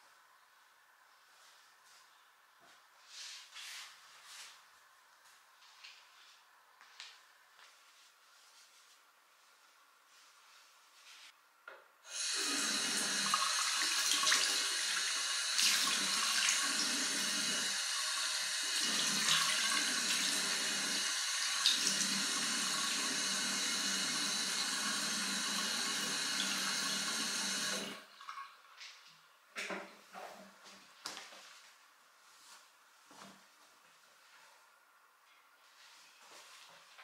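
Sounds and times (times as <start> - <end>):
tap water running into basin: 12.1 - 28.4.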